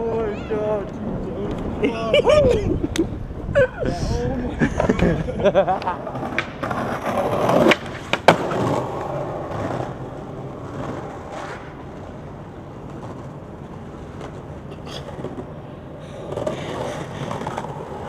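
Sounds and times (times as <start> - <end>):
low hum of city traffic: 0.0 - 18.0
skateboard wheels rolling: 0.0 - 18.0
skateboard clacks on stone: 6.2 - 10.0.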